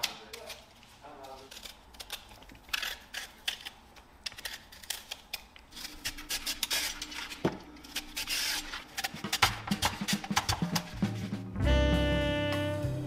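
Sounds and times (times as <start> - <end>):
music: 9.1 - 13.0.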